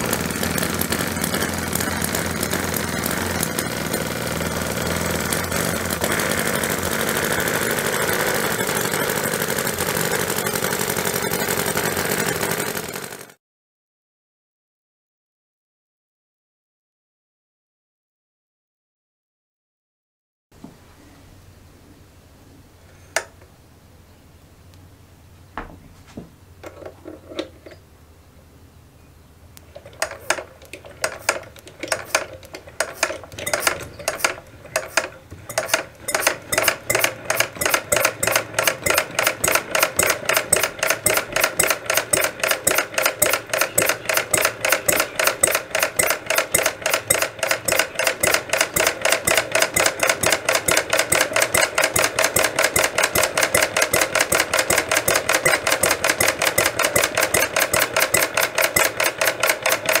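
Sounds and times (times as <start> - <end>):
model engine beating: 0.0 - 13.4, 29.8 - 60.0.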